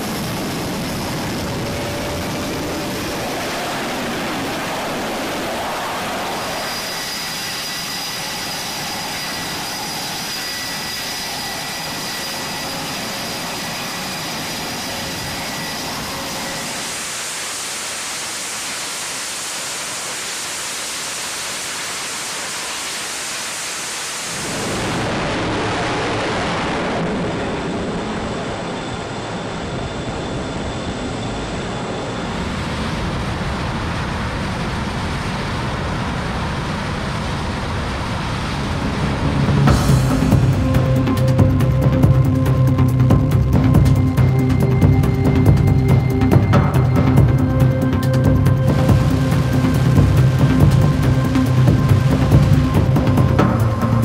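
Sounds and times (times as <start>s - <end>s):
high thin whine: 0.0s - 26.3s, 37.9s - 54.0s
jet engine noise: 0.0s - 54.0s.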